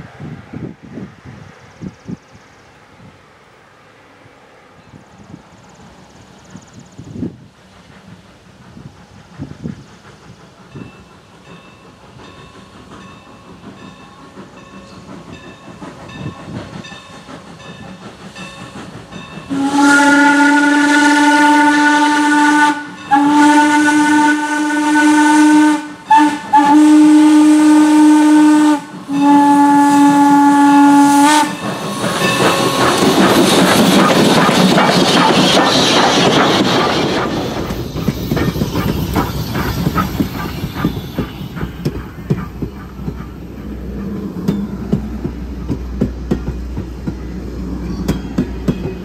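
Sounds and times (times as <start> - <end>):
rush of steam and running gear: 0.0 - 49.0
steam whistle blasts: 19.5 - 33.0.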